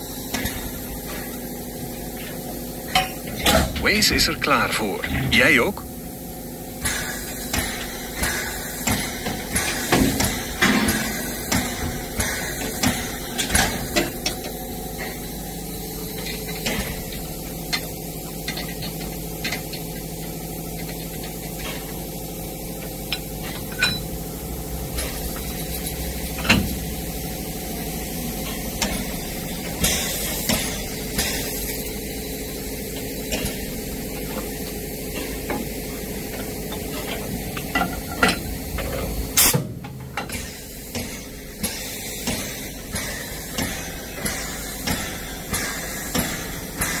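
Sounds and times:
steam locomotive hissing: 3.7 - 18.3, 25.0 - 39.6, 40.2 - 47.0.

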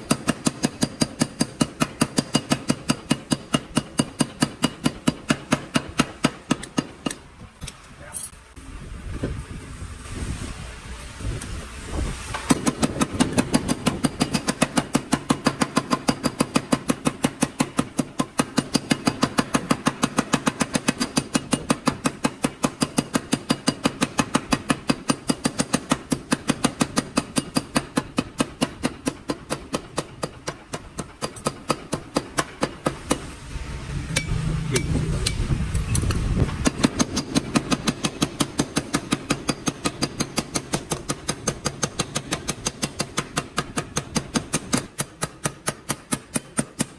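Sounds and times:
power hammer striking hot steel: 0.0 - 7.3, 12.3 - 46.9
machine low hum: 33.0 - 37.0.

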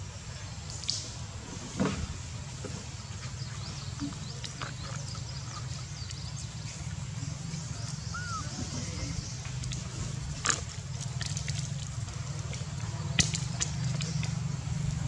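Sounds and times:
faint high chirps and ticks: 3.2 - 8.2.

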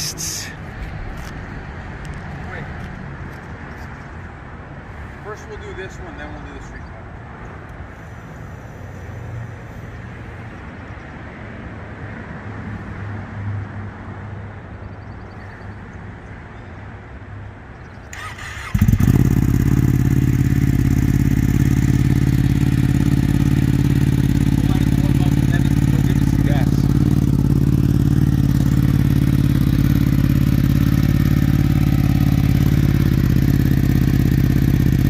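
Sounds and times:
motorcycle engine starting and idling: 18.0 - 35.0.

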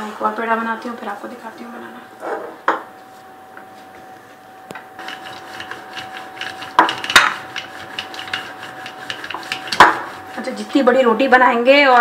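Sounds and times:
rolling pin rolling dough: 5.0 - 11.4.

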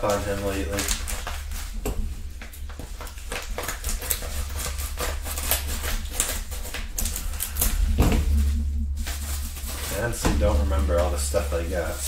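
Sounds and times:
envelope crinkling: 0.0 - 7.2.

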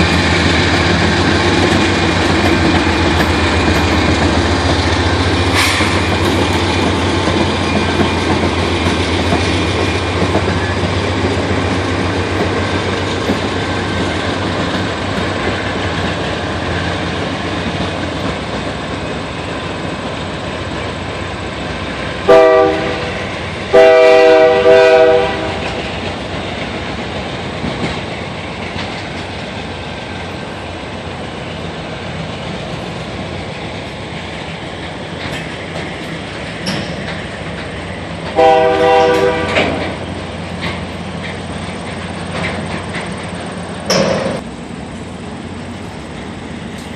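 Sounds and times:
freight cars rolling on rails: 0.0 - 46.9
locomotive engines droning: 0.0 - 46.9
train horn blasts: 22.2 - 25.8, 38.3 - 40.0.

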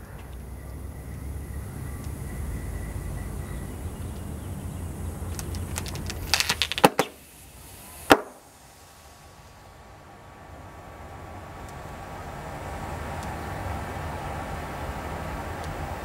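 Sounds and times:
battery popping and crackling: 5.2 - 7.2.

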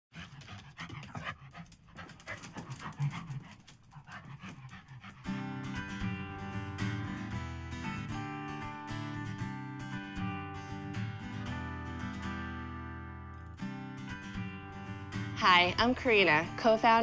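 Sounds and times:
dog panting: 0.1 - 6.2
guitar music: 5.1 - 17.0.

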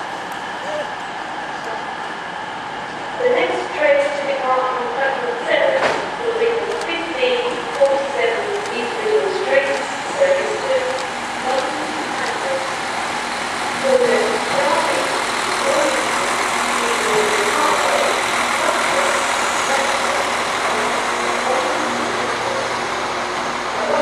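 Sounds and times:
diesel train engine humming: 0.0 - 24.0
wheel-on-rail noise: 6.6 - 24.0.

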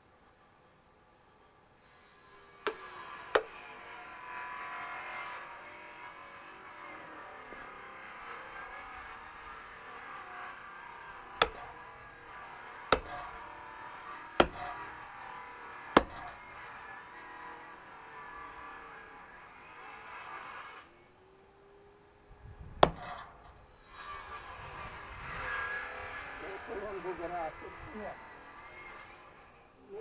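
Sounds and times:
axe chopping firewood: 2.6 - 3.6, 11.4 - 11.8, 12.9 - 13.5, 14.4 - 15.1, 16.0 - 16.4, 22.8 - 23.1.

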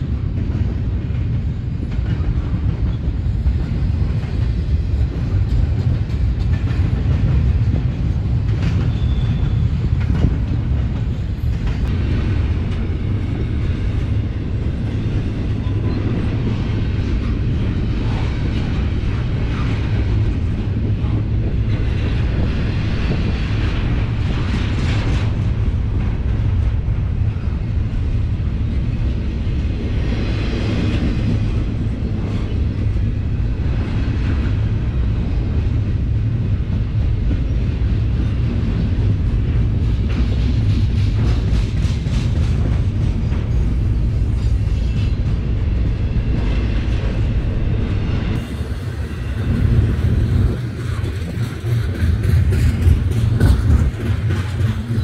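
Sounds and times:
train wheels rumbling on rails: 0.0 - 55.0
rushing wheel noise: 28.9 - 55.0.

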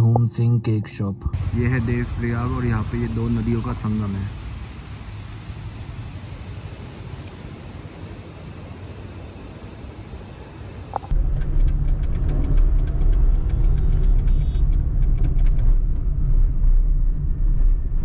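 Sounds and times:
car engine and tyres rumbling: 1.3 - 18.0
rapid clicks and rattles: 11.1 - 15.9.

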